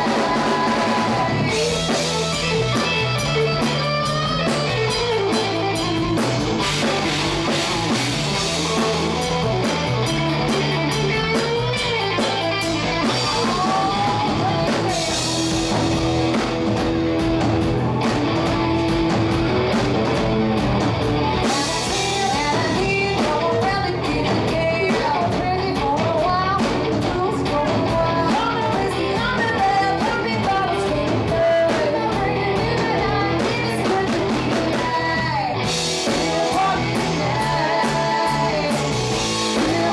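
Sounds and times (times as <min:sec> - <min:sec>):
women singing: 0:00.0 - 0:02.2, 0:13.1 - 0:15.5, 0:21.5 - 0:39.9
bass guitar: 0:00.0 - 0:39.9
drum kit: 0:00.0 - 0:39.9
electric guitars: 0:00.0 - 0:39.9.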